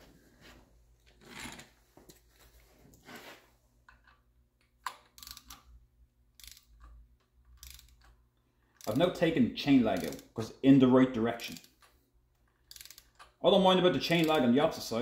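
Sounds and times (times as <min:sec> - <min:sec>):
socket wrench clicks and knocks: 0:03.9 - 0:05.7, 0:06.4 - 0:09.0.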